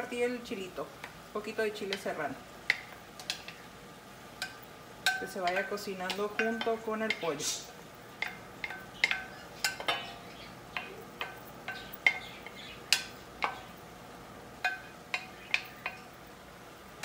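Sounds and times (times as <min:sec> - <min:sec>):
wooden spoon clinking on a dish: 0:04.4 - 0:07.2, 0:08.2 - 0:13.7.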